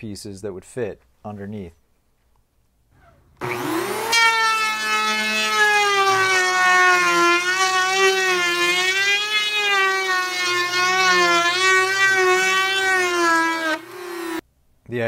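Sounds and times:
electric hand planer whining: 3.4 - 14.4.

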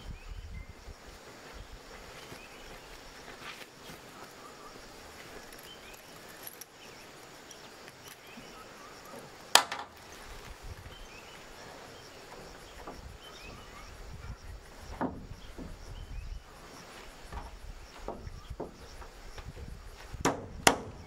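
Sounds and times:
faint chirping: 0.0 - 21.0
knocks on corrugated roof: 14.9 - 15.9, 17.3 - 19.0, 20.2 - 21.0.

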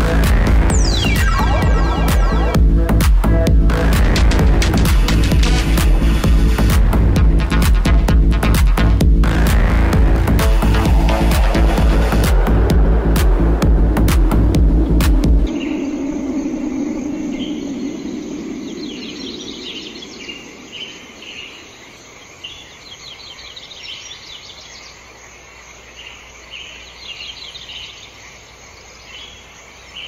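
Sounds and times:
high-pitched wildlife chirping: 0.2 - 2.6, 10.3 - 25.0
low sustained tone: 10.1 - 21.4.

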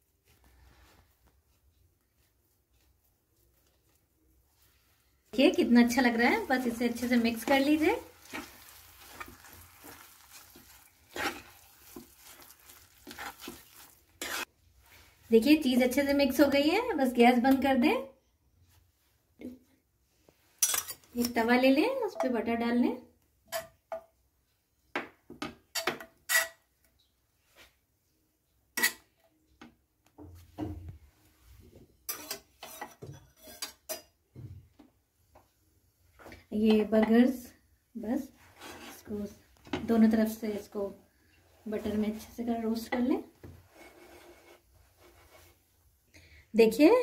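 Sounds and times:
steel spoon scraping a pan: 5.4 - 14.5, 20.6 - 21.3, 26.3 - 26.6, 32.1 - 34.0, 38.4 - 39.2, 43.6 - 45.6
faint sizzle from pan: 5.4 - 15.3.

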